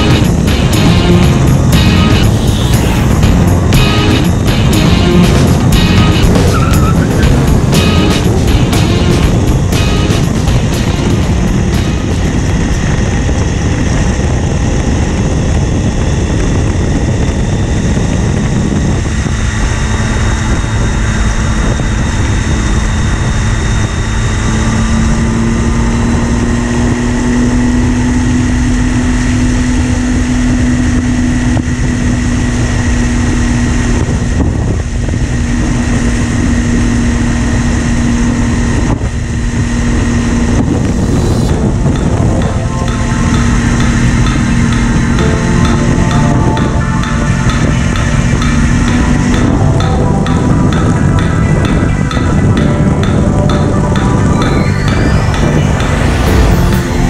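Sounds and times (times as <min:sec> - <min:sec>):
motorcycle engine running: 0:00.0 - 0:57.0
wind rush on microphone: 0:00.0 - 0:57.0.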